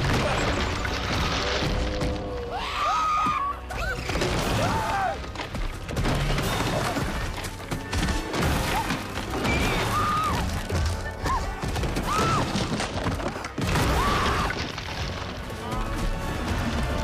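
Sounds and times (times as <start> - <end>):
stampede thuds and crashes: 4.0 - 17.0.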